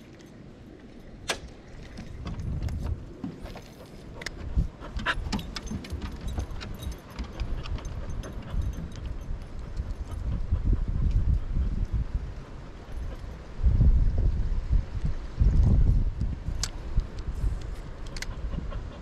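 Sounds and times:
light clicks from gear: 0.0s - 13.4s, 15.0s - 18.4s
metallic jingling: 4.9s - 10.4s.

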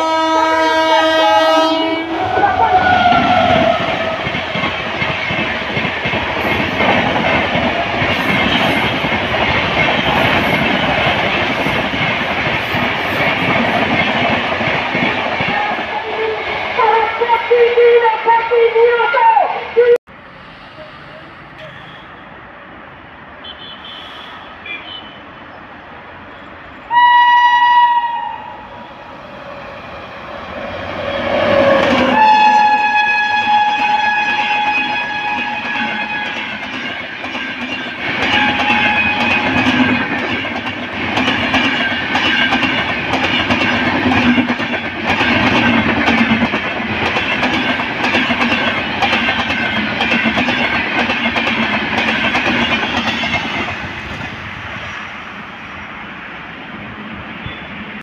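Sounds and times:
locomotive horn blasts: 0.0s - 3.3s, 26.9s - 28.6s, 32.1s - 36.5s, 38.3s - 39.5s
train rumbling past: 0.0s - 58.0s.

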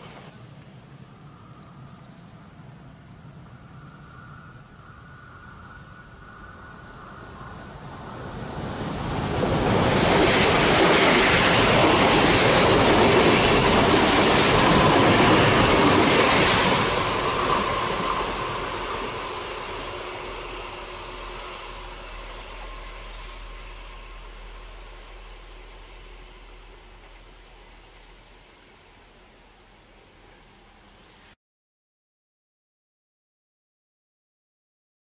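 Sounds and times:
train passing wheel and rail noise: 0.0s - 31.4s.

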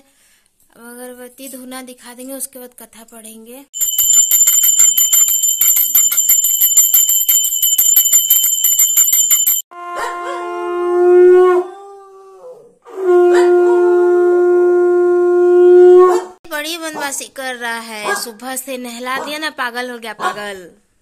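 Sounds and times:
small brass hand bell ringing: 3.8s - 9.7s
conch shell blasts: 9.7s - 11.5s.

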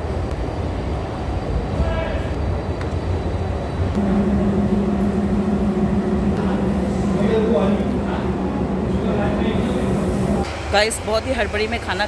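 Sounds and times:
low mechanical rumble: 3.9s - 10.5s
steady low hum: 3.9s - 10.7s.

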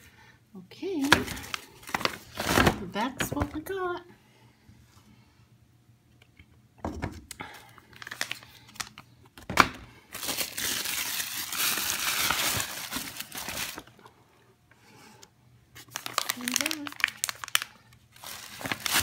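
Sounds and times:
paper bag crinkling and rustling: 1.0s - 3.6s, 7.6s - 14.1s, 15.8s - 19.0s.

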